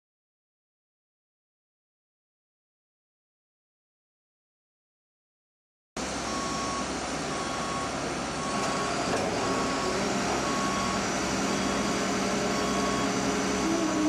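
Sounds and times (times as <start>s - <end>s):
lorry engine running: 6.0s - 14.0s
reversing alarm beeping: 6.2s - 14.0s.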